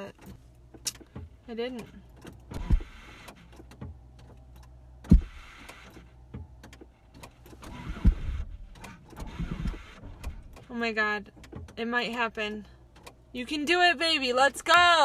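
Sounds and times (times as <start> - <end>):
car ignition clunks: 0.1 - 13.4
starter motor whirr: 2.2 - 10.7.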